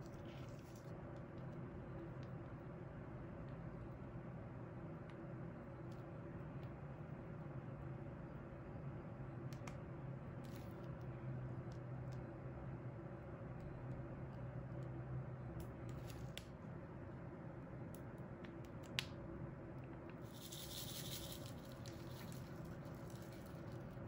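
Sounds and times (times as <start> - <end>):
low room hum: 0.0 - 24.0
plastic bag crinkling: 20.3 - 24.0.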